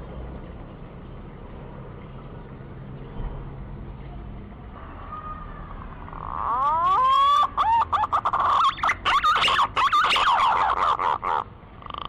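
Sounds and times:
pigeon whistled song: 6.4 - 11.0.

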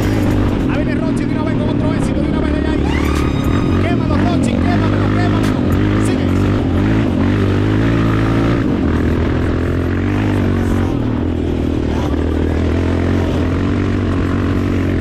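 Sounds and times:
dirt bike engine running: 0.0 - 15.0.

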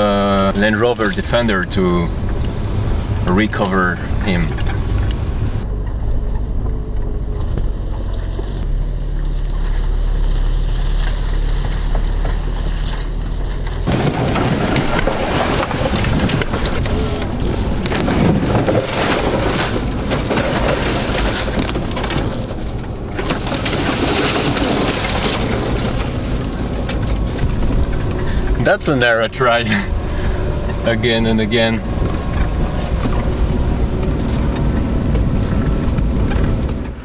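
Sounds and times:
branches scraping vehicle bodywork: 0.0 - 37.0
vehicle engine rumble: 0.0 - 37.0
wind noise on microphone: 29.9 - 37.0.

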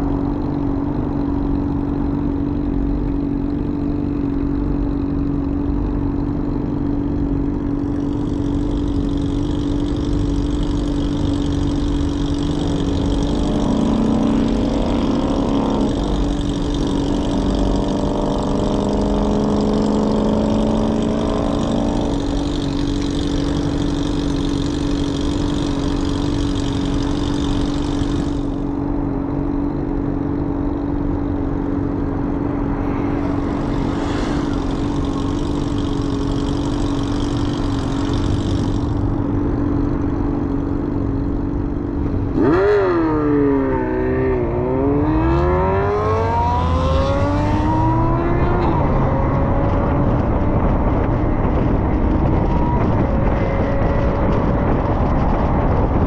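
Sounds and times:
idling engines hum: 0.0 - 56.0
vehicle accelerating past: 32.3 - 39.2, 42.3 - 55.3.

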